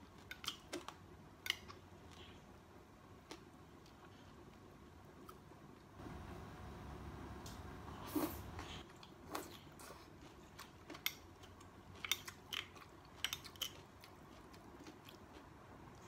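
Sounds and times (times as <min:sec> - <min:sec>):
chewing and lip-smacking: 0:08.8 - 0:16.0.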